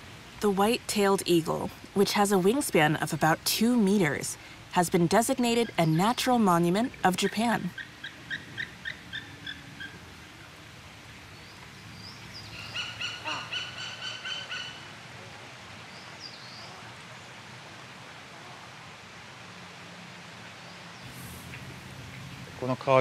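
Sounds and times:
eagle yelping calls: 12.6 - 14.9.

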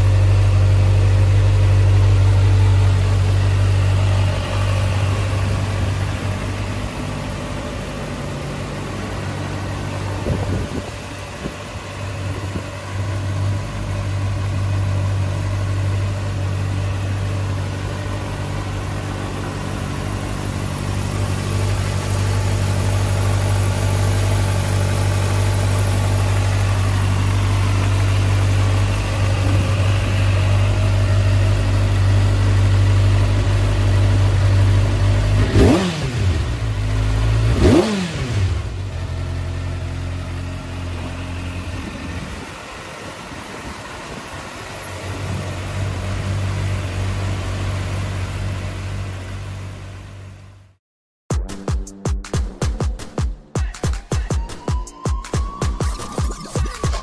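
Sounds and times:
motorcycle engine idling: 0.0 - 50.7
engine revving: 18.1 - 42.5.

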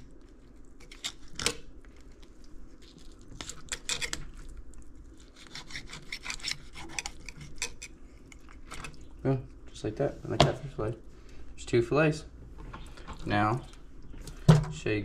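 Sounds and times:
knife sawing and scraping fish bones: 3.4 - 4.4, 5.1 - 9.0.

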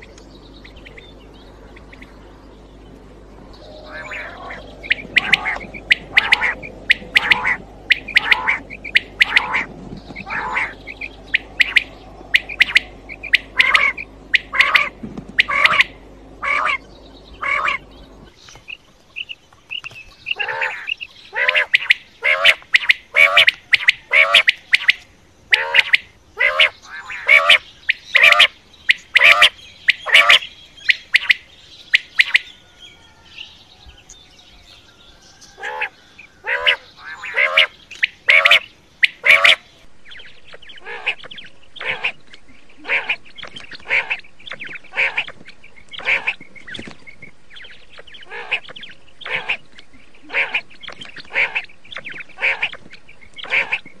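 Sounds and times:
quail calling: 3.6 - 18.4, 20.2 - 33.2, 35.4 - 39.9, 40.5 - 54.0.

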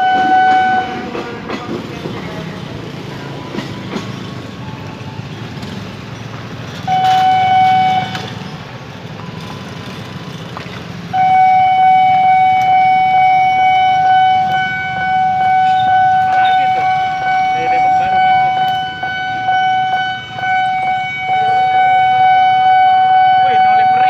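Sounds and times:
level crossing warning alarm: 0.0 - 1.3, 6.9 - 8.5, 11.1 - 24.0
electric train passing: 0.0 - 24.0.

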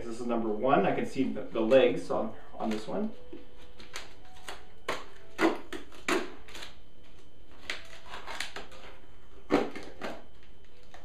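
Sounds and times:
tape peeling off plastic: 3.7 - 11.0.

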